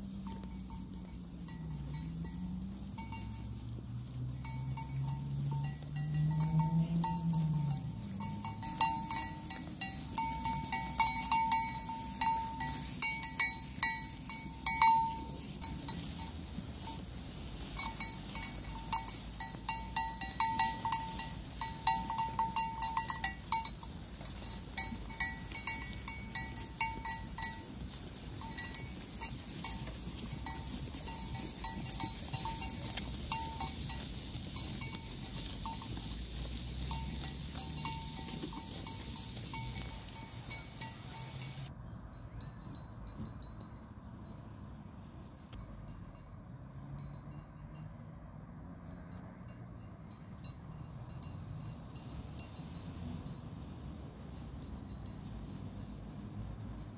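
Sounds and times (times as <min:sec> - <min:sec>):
sheep bells clanking: 0:00.0 - 0:56.9
sheep tearing grass: 0:05.5 - 0:41.7.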